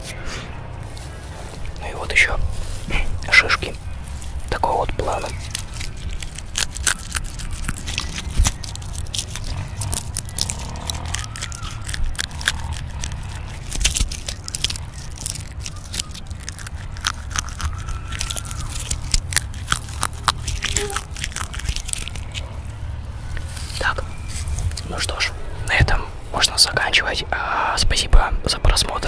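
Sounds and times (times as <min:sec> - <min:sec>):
dry material crumbled between fingers: 0:04.1 - 0:22.7.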